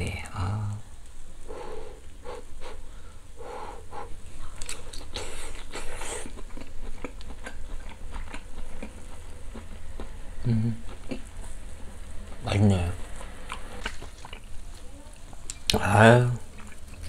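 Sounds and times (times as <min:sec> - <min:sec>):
breathy hiss of air: 0:00.9 - 0:06.3
person chewing food: 0:03.8 - 0:17.0.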